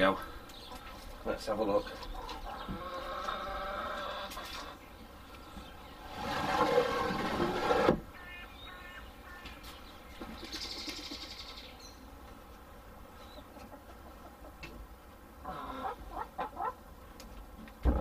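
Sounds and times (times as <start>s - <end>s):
door scraping in runners: 6.0s - 8.1s
faint bird calls: 8.1s - 12.1s.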